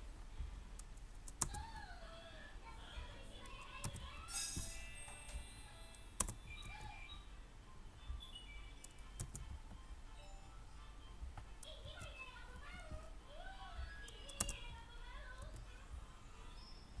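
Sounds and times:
faint background music: 0:00.0 - 0:17.0
keyboard keystrokes and clicks: 0:00.7 - 0:01.9, 0:03.4 - 0:04.2, 0:06.2 - 0:07.0, 0:08.1 - 0:09.8, 0:13.8 - 0:15.7.

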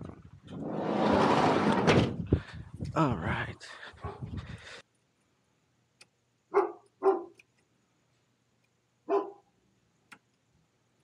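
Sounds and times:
large dog barking: 0:06.5 - 0:07.4, 0:09.1 - 0:09.5.

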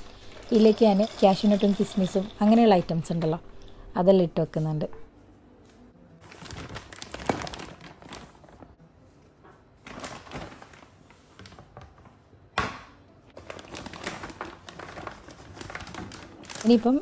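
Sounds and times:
plastic bag rustling: 0:06.2 - 0:08.8, 0:09.8 - 0:12.0, 0:13.4 - 0:17.0.

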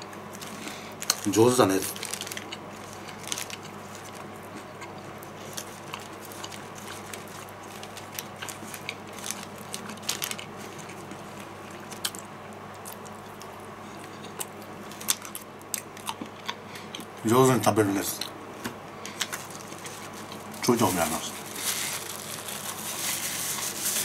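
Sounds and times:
soft eating sounds: 0:00.0 - 0:24.0
paper wrapper crinkling: 0:00.3 - 0:04.3, 0:05.2 - 0:11.2, 0:19.1 - 0:24.0.

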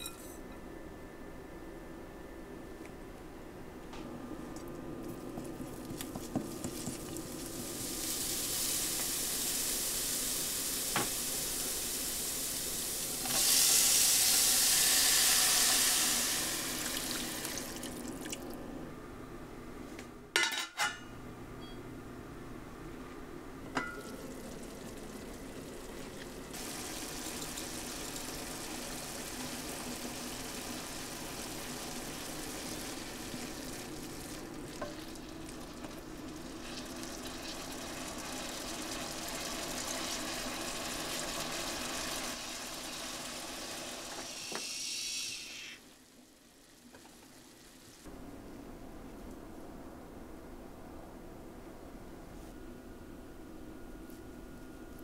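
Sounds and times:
food sizzling in a frying pan: 0:06.3 - 0:17.5, 0:26.5 - 0:48.1
loud hiss of liquid in hot pan: 0:07.6 - 0:17.4, 0:39.9 - 0:45.9.

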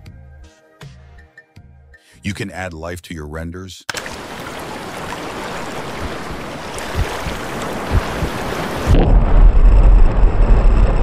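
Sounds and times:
ocean waves on a beach: 0:03.9 - 0:09.0
low thumps: 0:06.8 - 0:11.0
deep low rumble: 0:08.9 - 0:11.0.

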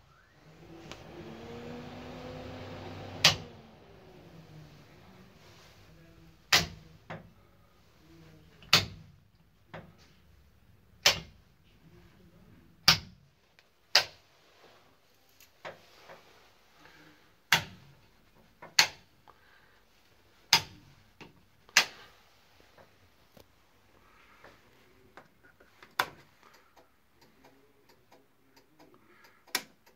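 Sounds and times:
toggle switches clicking: 0:03.1 - 0:03.6, 0:06.5 - 0:07.3, 0:08.6 - 0:09.1, 0:11.0 - 0:11.4, 0:12.8 - 0:13.2, 0:13.9 - 0:14.2, 0:17.5 - 0:17.8, 0:18.7 - 0:19.1, 0:21.7 - 0:22.0, 0:25.8 - 0:29.9.

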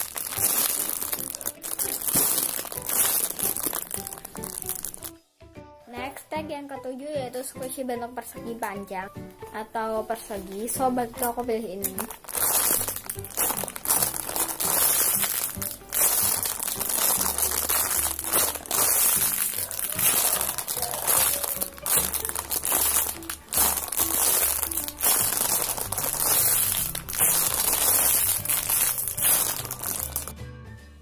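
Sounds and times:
plastic bag crinkling: 0:00.0 - 0:05.1, 0:11.2 - 0:30.3
background music with bass line: 0:00.0 - 0:31.0.

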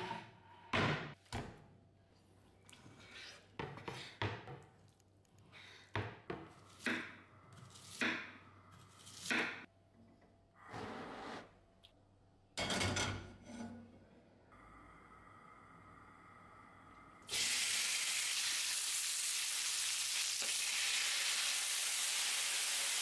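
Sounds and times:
knife cutting onion on board: 0:06.0 - 0:09.7
gas burner lighting hiss: 0:17.3 - 0:23.0.

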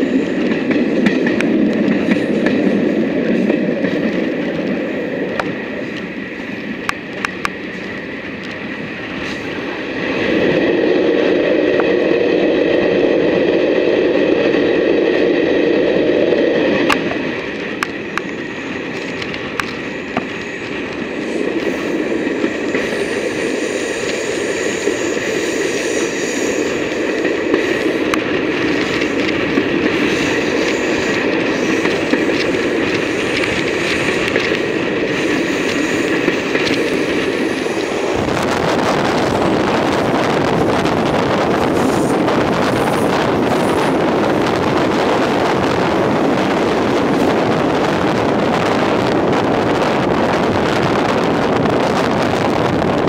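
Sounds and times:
diesel train rumble: 0:00.0 - 0:53.0.

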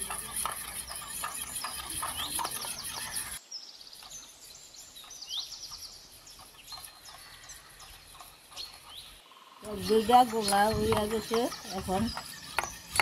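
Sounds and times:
spoon scraping a steel bowl: 0:00.0 - 0:03.4, 0:06.1 - 0:13.0
birds chirping and trilling: 0:00.0 - 0:13.0.

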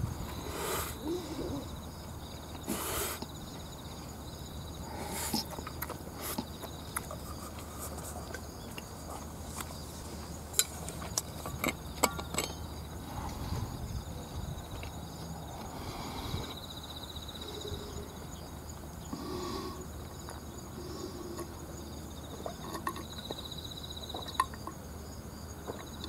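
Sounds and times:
insect trilling: 0:00.1 - 0:09.0, 0:11.2 - 0:24.8
chewing: 0:05.3 - 0:09.8.

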